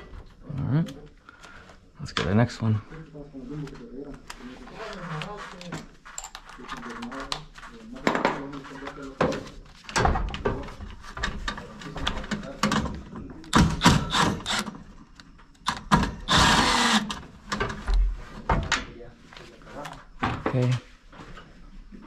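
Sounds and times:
cordless drill burst: 13.8s - 14.8s, 16.2s - 17.2s.

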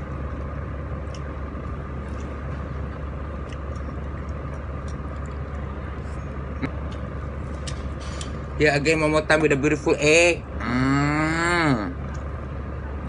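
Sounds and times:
low background hum: 0.0s - 13.0s
person chewing: 1.0s - 8.4s.

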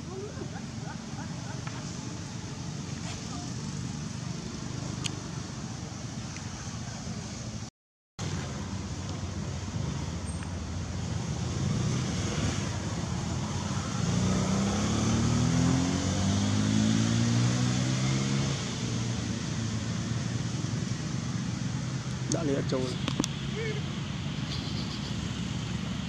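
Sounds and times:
road traffic noise: 0.0s - 26.0s
vehicle engine speeding up: 11.0s - 22.2s.

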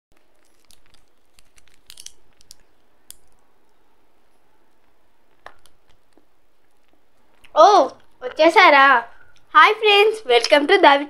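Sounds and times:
wrapper crinkling: 0.2s - 3.8s.

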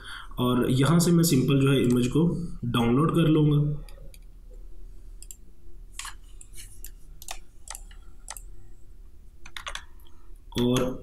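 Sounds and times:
faint steady hum: 0.0s - 11.0s
computer mouse clicks: 5.2s - 8.6s, 9.4s - 10.9s.

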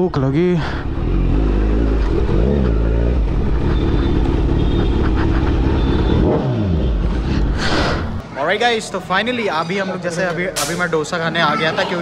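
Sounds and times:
motorcycle engine running: 0.9s - 7.6s.

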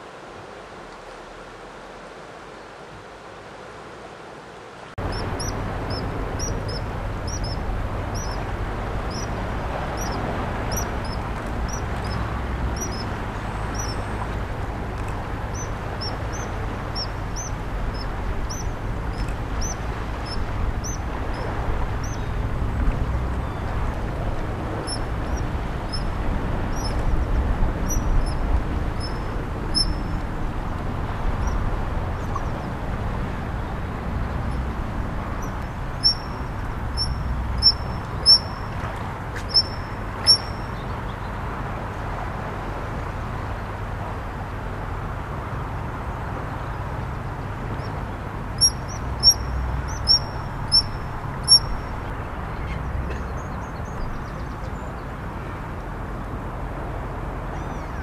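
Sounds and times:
river rushing: 0.0s - 53.3s
otters squeaking: 5.0s - 14.2s, 15.1s - 22.4s, 27.8s - 30.3s, 35.3s - 38.8s, 39.4s - 40.7s, 48.6s - 51.8s.

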